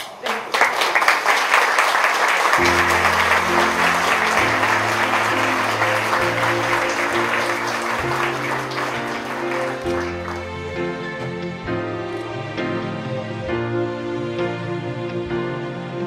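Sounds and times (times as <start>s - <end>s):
guests applauding: 0.0s - 11.4s
soft music with low chords: 2.6s - 16.0s.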